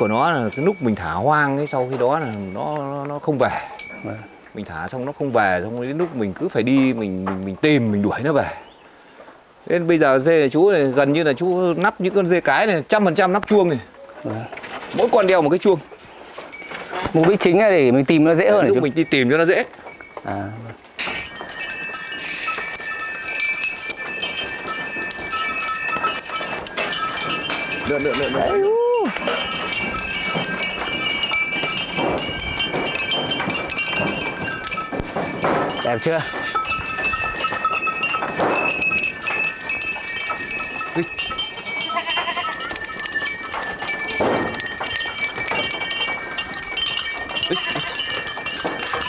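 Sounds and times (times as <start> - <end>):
goat bells jingling: 0.0 - 8.7, 9.6 - 49.0
goats bleating: 41.8 - 42.7, 47.4 - 48.0.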